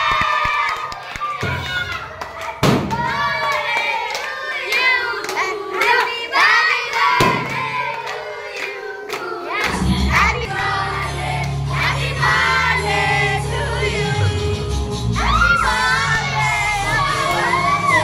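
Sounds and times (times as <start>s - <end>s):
hand claps: 0.0s - 9.8s
young voices singing and shouting: 1.2s - 18.0s
loud music with deep bass: 9.7s - 18.0s.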